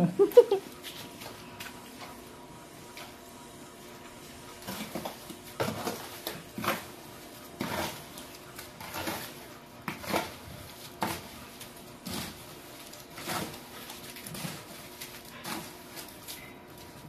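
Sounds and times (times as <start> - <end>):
trowel scraping wet concrete: 4.6 - 16.5.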